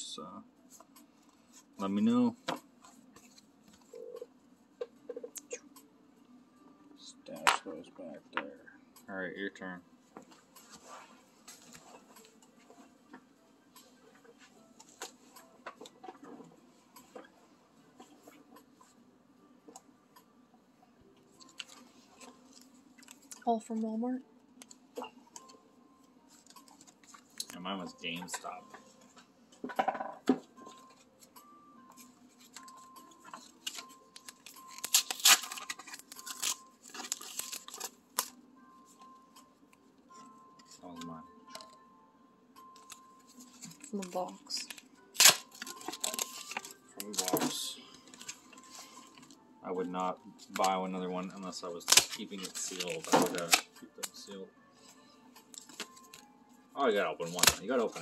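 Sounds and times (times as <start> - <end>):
foil packs crinkling and ticking: 33.4 - 38.4, 43.6 - 49.4, 50.4 - 54.3, 56.9 - 58.0
cardboard and plastic wrap tearing: 33.6 - 38.3, 43.7 - 48.4, 51.8 - 53.7, 57.2 - 57.9.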